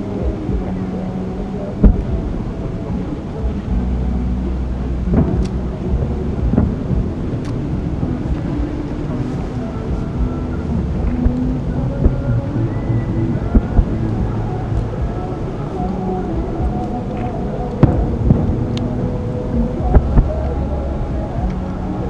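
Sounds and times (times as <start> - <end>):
low rumble: 0.0 - 22.0
distant fireworks booms: 5.0 - 15.4, 16.4 - 21.6.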